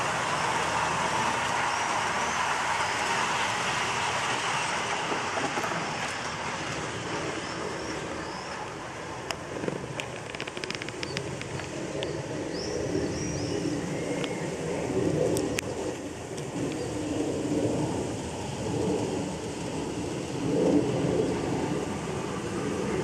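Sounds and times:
model train wheels rumbling: 0.0 - 12.0
birds chirping: 7.3 - 8.7, 10.8 - 14.6
faint clicks: 9.2 - 12.1.

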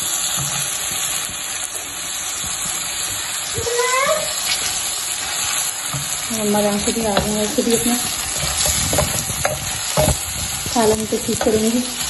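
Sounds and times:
chicken and onions sizzling in oil: 0.0 - 12.0
wooden spoon stirring: 4.4 - 12.0.

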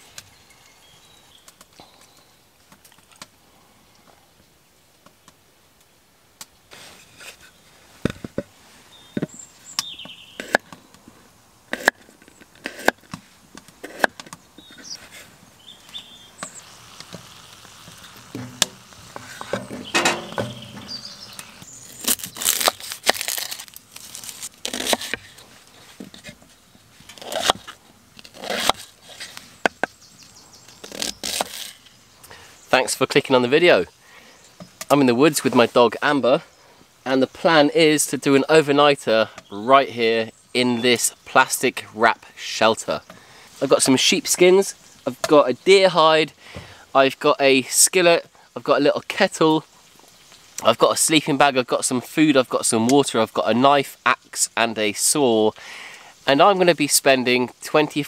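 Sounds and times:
knife slicing onion on wooden board: 12.6 - 13.0
rustling plastic sheeting: 21.8 - 26.0.

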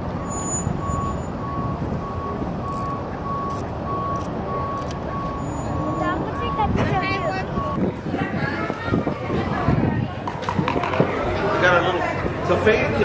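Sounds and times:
reversing alarm beeping: 0.2 - 7.9.

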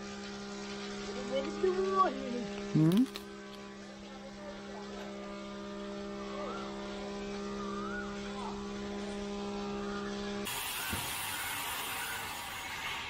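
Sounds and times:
low held hum: 0.0 - 13.0
faint rising and falling chirps: 5.8 - 12.8.

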